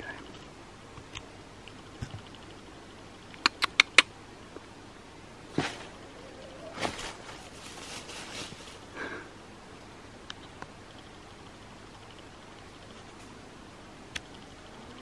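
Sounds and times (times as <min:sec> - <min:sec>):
quick sharp clicks: 0:03.3 - 0:04.1
rustling in dry leaves: 0:05.4 - 0:09.4.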